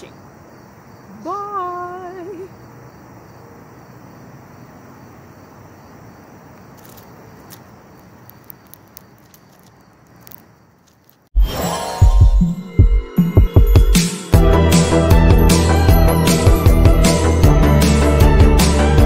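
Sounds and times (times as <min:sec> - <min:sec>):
insects buzzing: 0:00.0 - 0:11.3.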